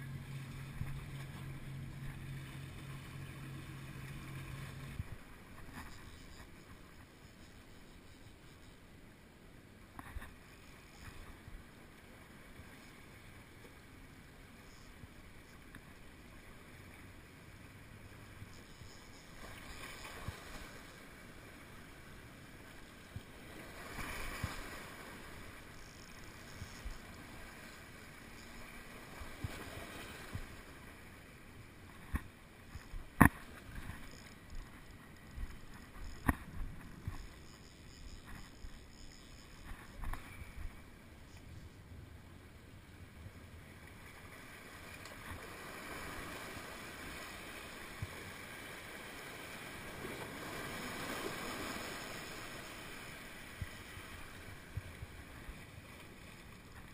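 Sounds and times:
sea water washing against rocks: 0:44.4 - 0:56.9.

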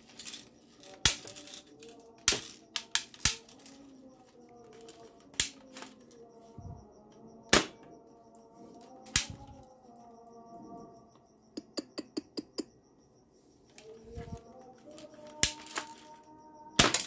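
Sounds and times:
plastic toy rifle clicking: 0:02.2 - 0:03.8, 0:04.7 - 0:06.1, 0:14.9 - 0:16.1.

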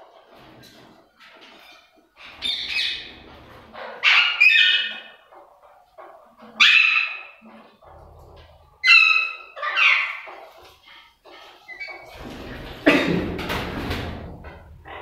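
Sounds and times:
parakeets screeching squawks: 0:01.6 - 0:05.2, 0:06.6 - 0:07.4, 0:08.8 - 0:10.3.

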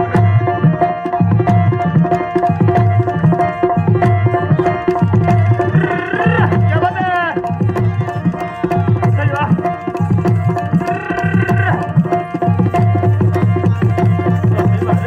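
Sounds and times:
hand drum fast rhythm: 0:00.0 - 0:15.0
harmonium held notes: 0:00.0 - 0:15.0
person singing: 0:05.6 - 0:06.6, 0:10.8 - 0:11.9.

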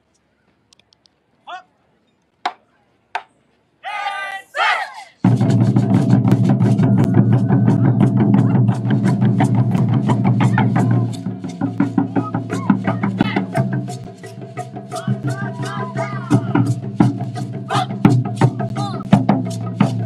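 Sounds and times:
people shouting calls: 0:01.5 - 0:01.8, 0:03.8 - 0:05.2, 0:07.1 - 0:08.8, 0:10.4 - 0:13.8, 0:14.9 - 0:16.8, 0:17.7 - 0:18.1, 0:18.7 - 0:19.1
taiko drums booming: 0:05.2 - 0:20.0.

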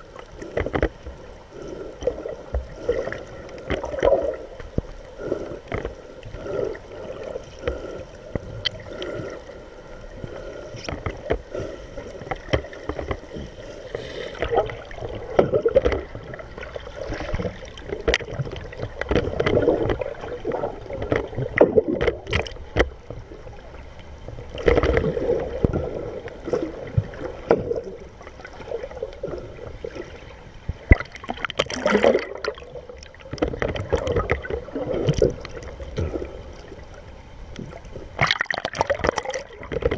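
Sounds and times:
muffled underwater sloshing and gurgling: 0:00.0 - 0:39.9.

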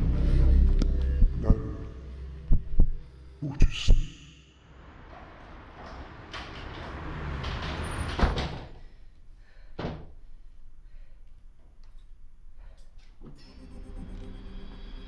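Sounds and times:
door slamming shut: 0:06.3 - 0:08.8.

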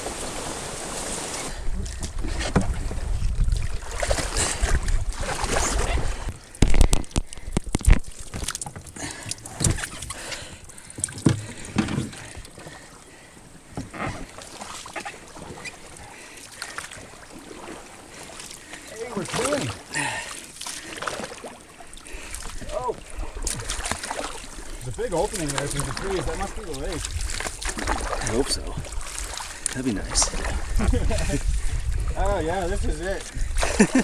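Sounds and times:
canoe hull scraping through plants: 0:00.0 - 0:06.3, 0:13.7 - 0:16.1, 0:20.5 - 0:34.0
water splashes: 0:00.0 - 0:34.0.

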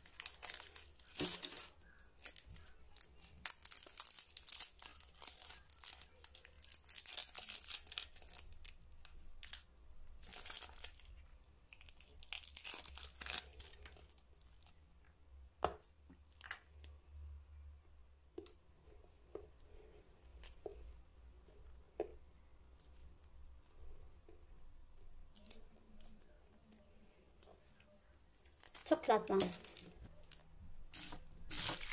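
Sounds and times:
candy wrapper crinkling: 0:00.0 - 0:14.8, 0:24.9 - 0:26.8, 0:28.4 - 0:31.9.

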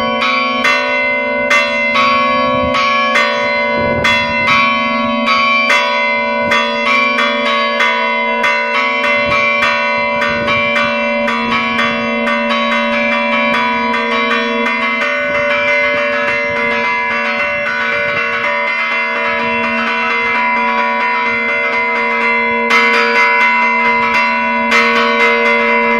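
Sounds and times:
church bells pealing: 0:00.0 - 0:25.9.

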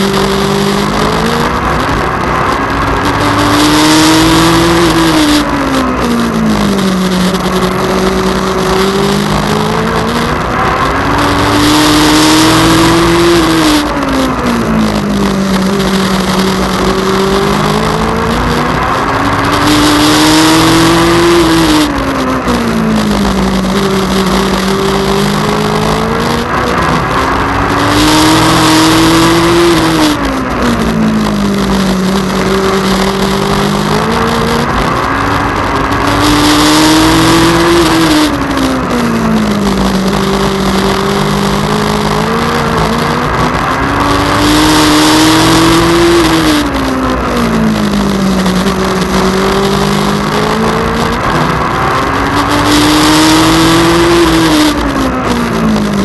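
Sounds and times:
racing engine revving: 0:00.0 - 0:56.0.

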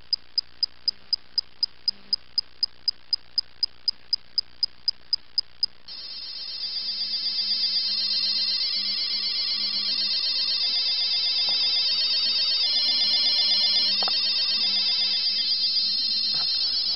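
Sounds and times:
watch alarm beeping rapidly: 0:05.9 - 0:16.9.

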